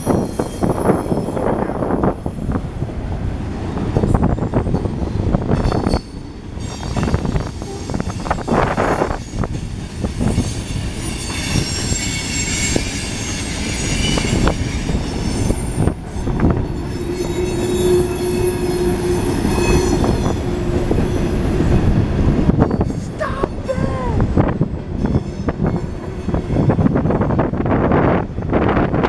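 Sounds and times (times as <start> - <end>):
freight train rolling past: 0.0 - 29.0
wheel squeal: 5.6 - 15.9, 16.7 - 21.3.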